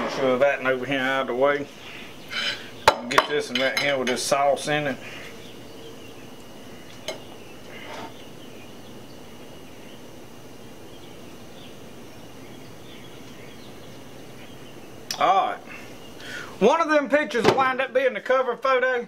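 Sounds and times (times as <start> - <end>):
high insect drone: 0.0 - 19.0
steady hiss: 0.0 - 19.0
faint chirps: 1.2 - 3.0, 4.4 - 16.6.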